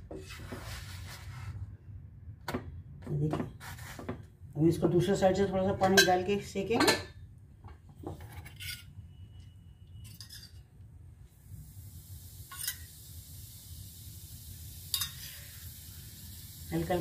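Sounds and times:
knocks and scrapes on a griddle: 0.0s - 1.3s, 3.4s - 4.3s
water sizzling on a hot griddle: 11.3s - 17.0s.

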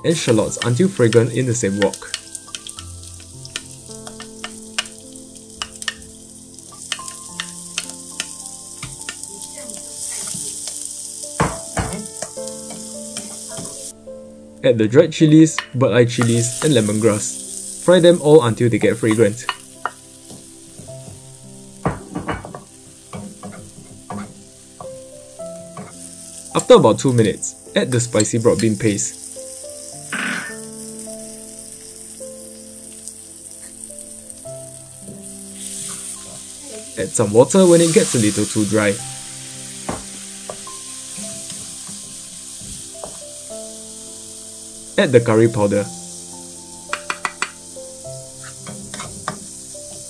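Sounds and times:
garlic sizzling in hot oil: 0.0s - 14.0s, 16.0s - 50.0s
wooden spatula scraping a wok: 8.8s - 10.9s, 48.3s - 50.0s.

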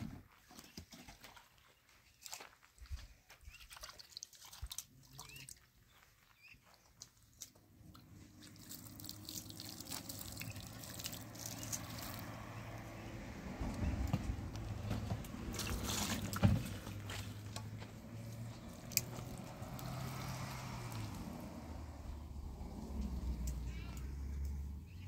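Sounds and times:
water pouring in a metal pan: 8.5s - 12.2s.

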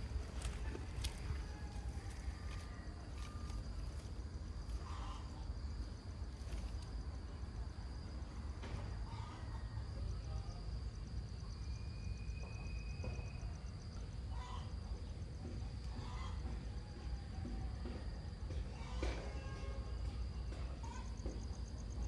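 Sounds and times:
steady low rumble: 0.0s - 9.4s
faint chirps: 0.0s - 15.2s.

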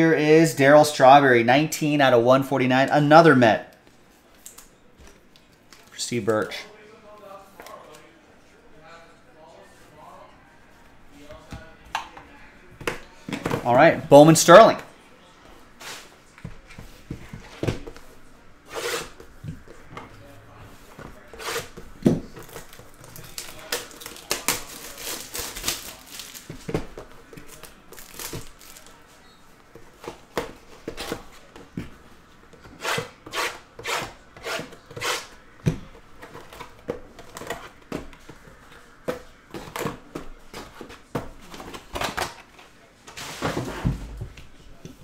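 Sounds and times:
plastic wrap crinkling and tearing: 22.4s - 26.7s, 27.4s - 29.0s
cardboard boxes handled and set down: 43.1s - 44.4s.

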